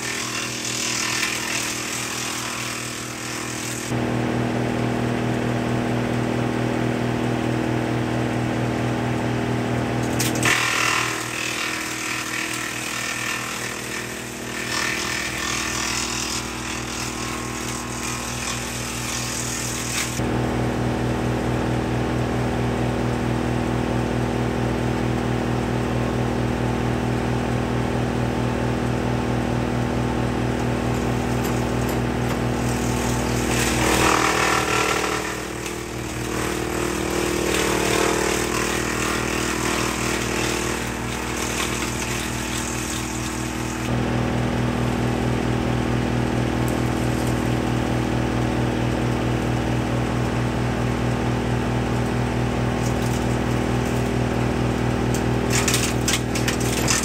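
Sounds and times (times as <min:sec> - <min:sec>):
wood chipper shredding branches: 0:00.0 - 0:26.3, 0:28.3 - 0:57.0
tractor engine droning: 0:27.1 - 0:34.0.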